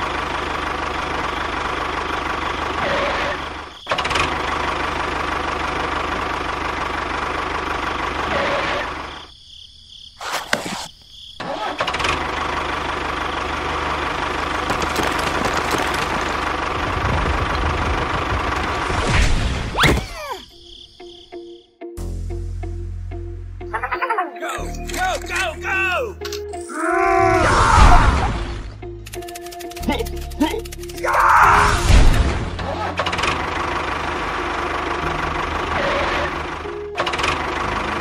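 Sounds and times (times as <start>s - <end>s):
toy tractor engine running: 10.2s - 18.2s, 29.0s - 31.1s
sharp clicks: 29.0s - 31.4s.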